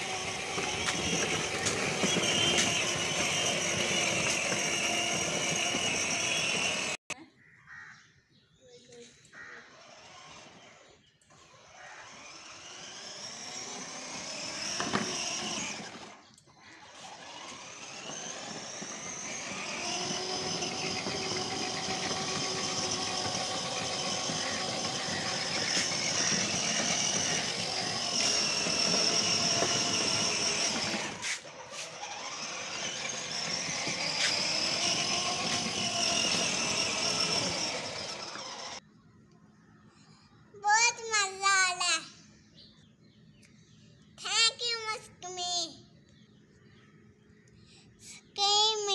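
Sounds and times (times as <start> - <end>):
toy car electric motor whine: 0.0 - 7.2, 9.4 - 38.8.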